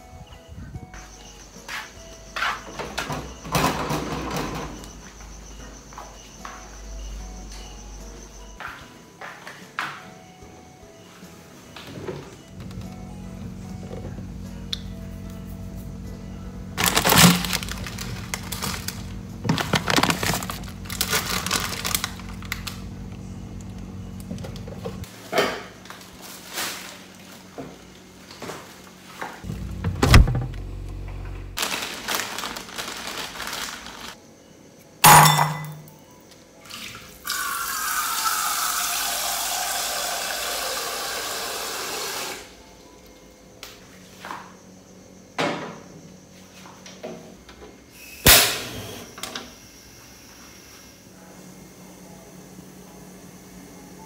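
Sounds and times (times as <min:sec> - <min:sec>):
handling knocks and thumps: 0:29.4 - 0:30.6.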